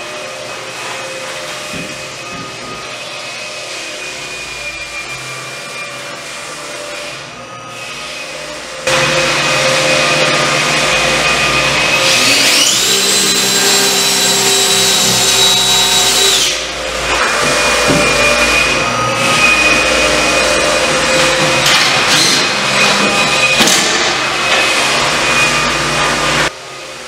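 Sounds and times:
cordless drill boring: 8.9 - 26.5.

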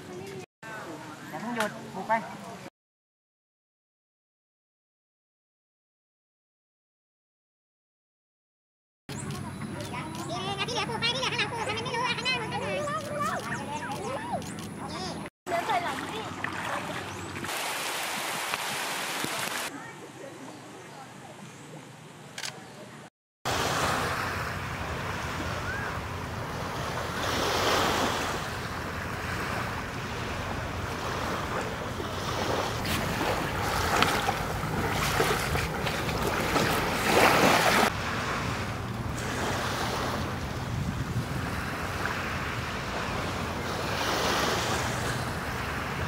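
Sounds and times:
waves washing onto sand: 15.5 - 19.8, 23.5 - 46.0
wind gusting on microphone: 23.5 - 46.0.

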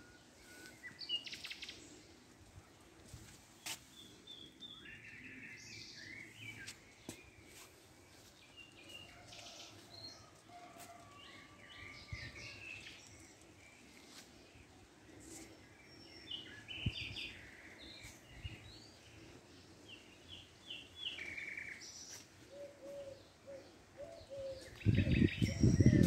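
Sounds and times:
birds chirping and trilling: 15.6 - 26.0.

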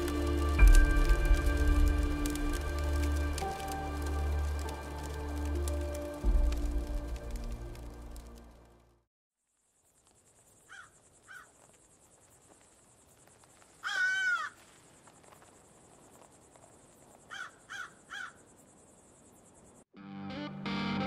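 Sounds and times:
high insect trill: 0.0 - 8.3, 9.4 - 19.9
crow cawing: 10.7 - 11.5, 13.8 - 14.6, 17.3 - 18.4.

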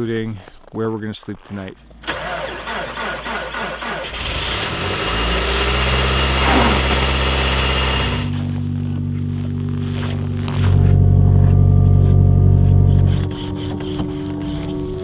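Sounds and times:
engine starter cranking: 2.0 - 8.3.

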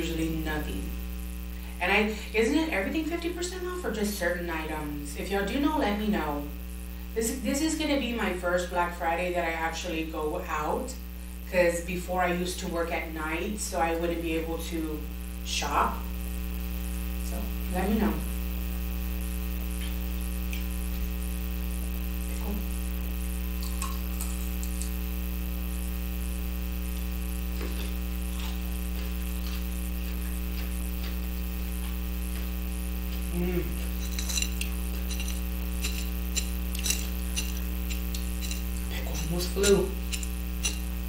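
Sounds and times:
electrical mains hum: 0.0 - 41.0.

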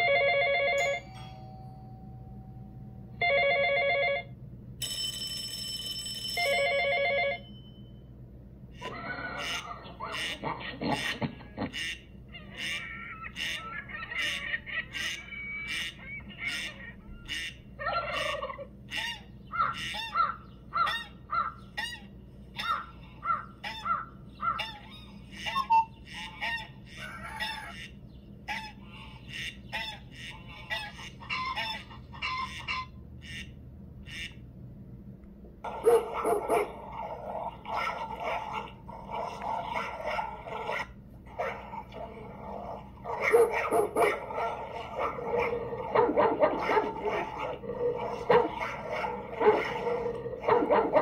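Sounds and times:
recorded bird chirping calls: 11.8 - 34.4
dog vocalizing: 35.6 - 51.0.

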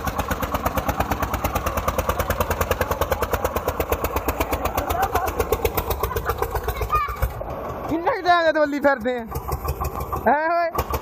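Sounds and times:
tractor diesel engine chugging: 0.0 - 11.0.

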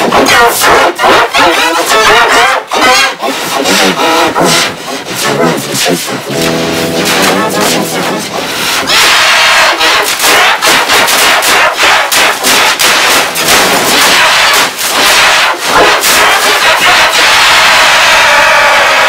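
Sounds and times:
rapid banging strikes: 2.7 - 17.1.

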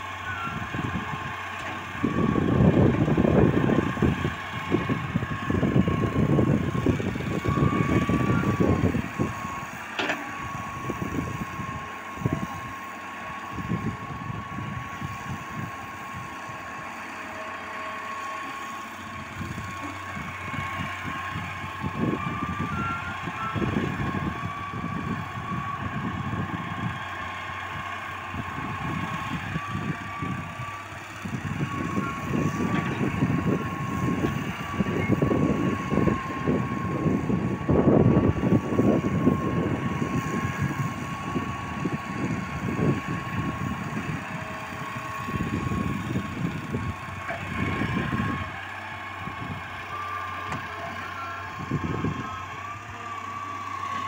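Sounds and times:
excavator diesel engine under load: 0.0 - 54.0.

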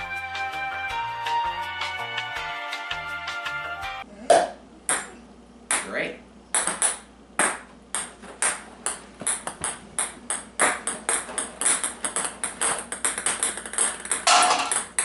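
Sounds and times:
ping pong balls bouncing: 4.3 - 5.9, 6.5 - 15.0.

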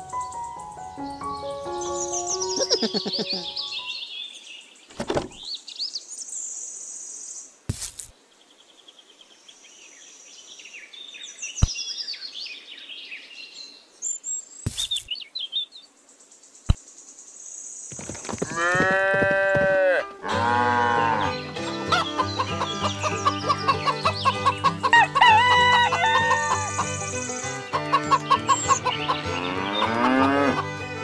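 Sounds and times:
birds chirping: 0.0 - 7.4, 8.1 - 19.7, 20.5 - 30.9
cow mooing: 18.6 - 21.4, 29.2 - 30.6.

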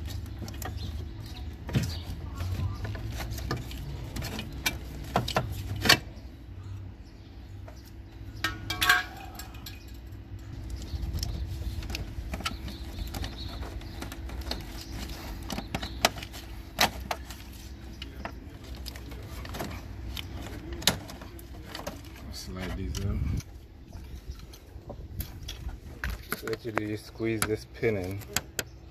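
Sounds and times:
low steady hum: 0.0 - 28.9.

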